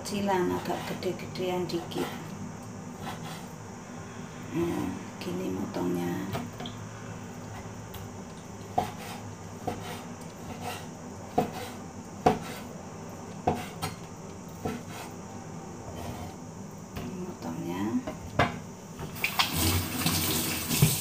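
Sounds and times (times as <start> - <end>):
cleaver chopping on wooden board: 8.8 - 12.6.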